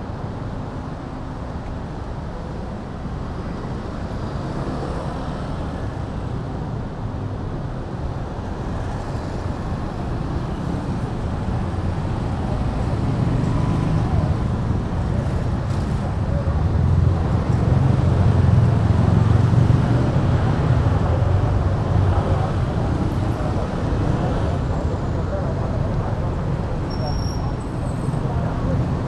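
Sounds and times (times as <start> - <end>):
cars and motorbikes passing: 8.6 - 29.0.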